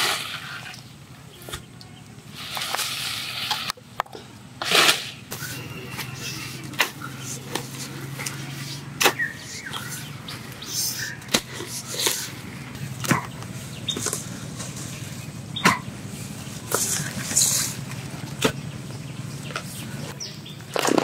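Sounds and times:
leafy stalks rustling: 4.6s - 21.0s
digging tool striking soil: 9.0s - 10.0s, 11.0s - 12.3s, 13.0s - 14.2s, 15.6s - 15.9s.

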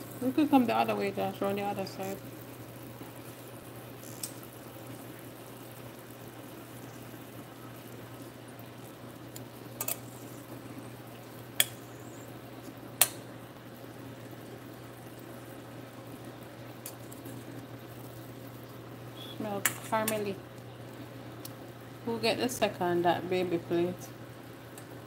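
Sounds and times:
steady low hum: 0.0s - 25.0s
metal tongs clinking on pan: 9.8s - 10.1s.

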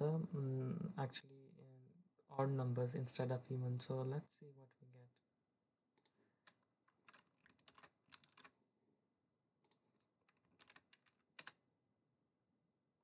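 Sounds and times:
faint keyboard typing: 6.0s - 8.6s, 9.6s - 11.6s.

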